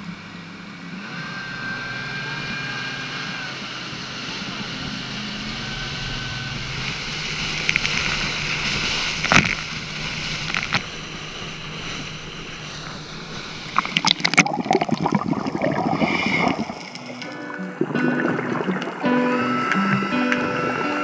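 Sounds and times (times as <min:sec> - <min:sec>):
low motor note: 0:00.0 - 0:14.4, 0:16.1 - 0:21.0
water rushing past boat: 0:00.0 - 0:21.0
hull knocking on waves: 0:04.3 - 0:14.6
spray splashing against boat: 0:06.8 - 0:14.3.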